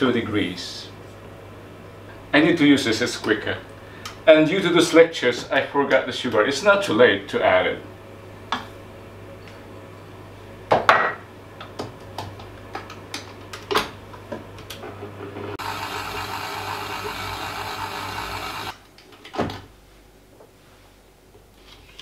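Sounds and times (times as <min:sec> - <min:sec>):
stand mixer motor running: 0:15.6 - 0:18.8.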